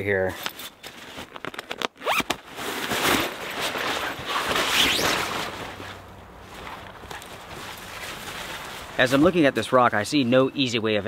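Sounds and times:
tarp fabric rustling: 0:00.6 - 0:09.6
zipper pulled open: 0:01.3 - 0:06.0.

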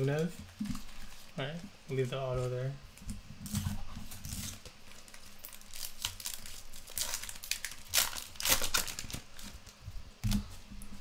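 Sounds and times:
foil wrapper tearing and crinkling: 0:03.4 - 0:09.8.

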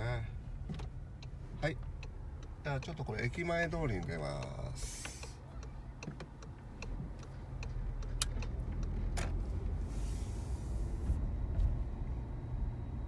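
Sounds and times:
car engine and road rumble: 0:00.0 - 0:13.0
brief hiss: 0:09.9 - 0:11.0.

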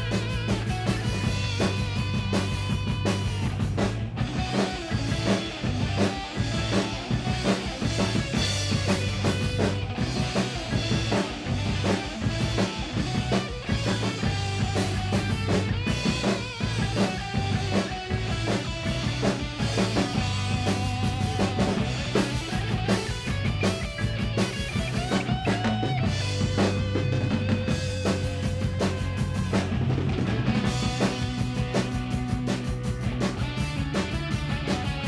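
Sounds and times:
drum kit playing: 0:00.0 - 0:35.0
recorded instrumental track: 0:00.0 - 0:35.0.

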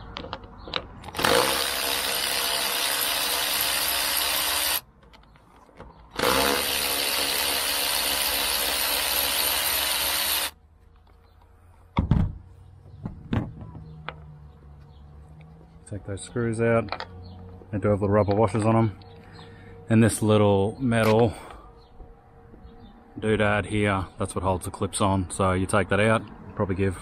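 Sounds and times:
electric ratchet running: 0:01.1 - 0:04.8, 0:06.2 - 0:10.6.

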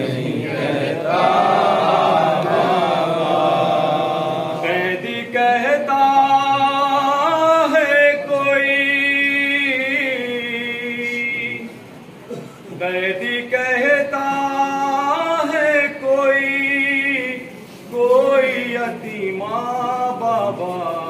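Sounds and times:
man chanting a lament: 0:12.8 - 0:21.0.

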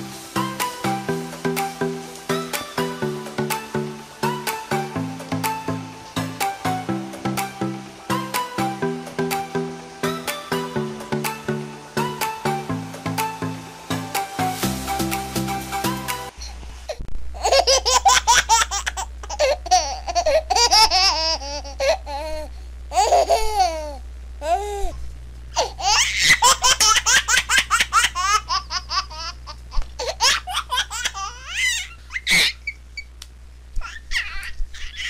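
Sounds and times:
child laughing and squealing: 0:25.6 - 0:29.3, 0:30.0 - 0:32.8, 0:33.8 - 0:35.0.

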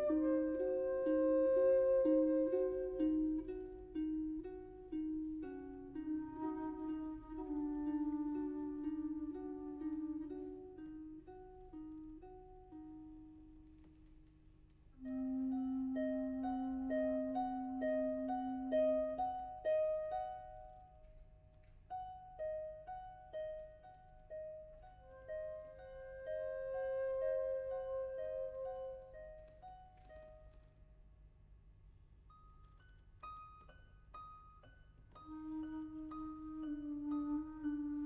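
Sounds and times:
alto flute notes: 0:00.0 - 0:12.3, 0:15.0 - 0:20.6, 0:25.0 - 0:30.3, 0:35.2 - 0:38.0.

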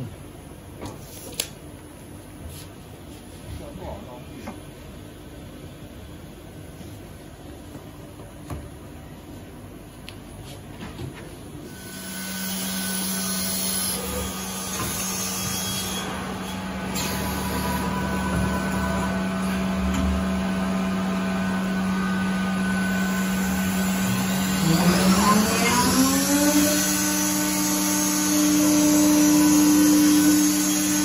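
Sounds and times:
machine hum: 0:11.6 - 0:31.0
spindle whine rising: 0:16.1 - 0:27.0.

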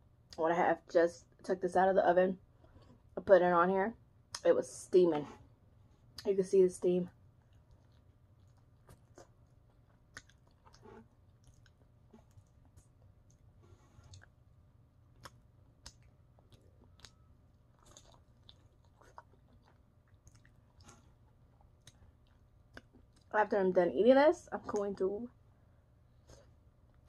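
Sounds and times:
chewing chicken wings: 0:07.4 - 0:13.4, 0:15.1 - 0:23.3.

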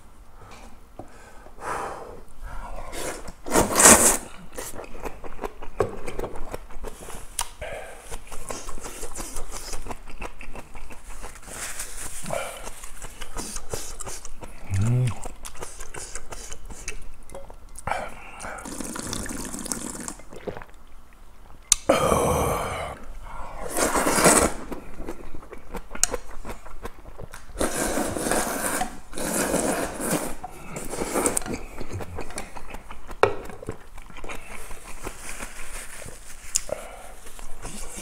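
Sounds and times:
slurping noodles: 0:02.8 - 0:05.8, 0:06.4 - 0:17.0, 0:18.0 - 0:20.7, 0:21.9 - 0:26.9, 0:27.5 - 0:33.2.

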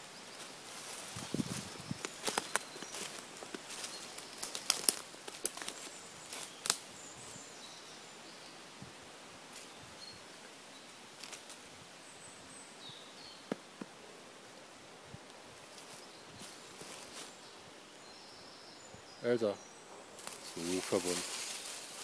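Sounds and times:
footsteps crunching through leaves: 0:00.3 - 0:07.4, 0:15.7 - 0:17.4, 0:20.2 - 0:22.0
twig snapping: 0:04.4 - 0:05.8, 0:06.6 - 0:06.8
faint bird chirps: 0:09.5 - 0:11.0, 0:15.6 - 0:21.9.

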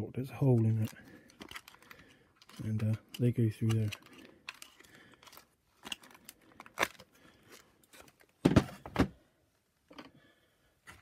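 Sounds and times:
plastic housing clicking and rattling: 0:00.4 - 0:07.0.

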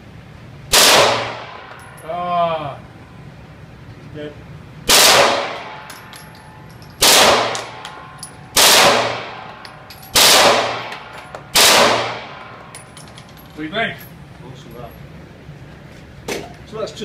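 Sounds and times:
spent casings tinkling: 0:01.7 - 0:02.1, 0:05.8 - 0:07.0, 0:07.8 - 0:08.6, 0:09.4 - 0:10.2, 0:12.4 - 0:15.2
automatic gunfire bursts: 0:07.0 - 0:07.7, 0:08.6 - 0:09.3.

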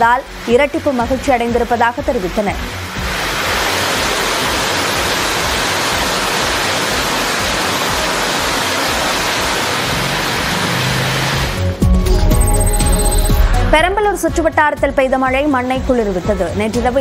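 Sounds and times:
heavy rain on a road: 0:02.7 - 0:11.8.

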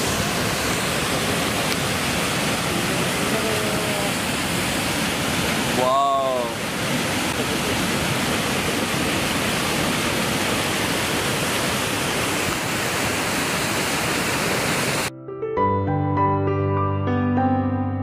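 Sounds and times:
waterfall rushing over rocks: 0:00.0 - 0:15.1
soft piano-like music: 0:15.1 - 0:18.0.

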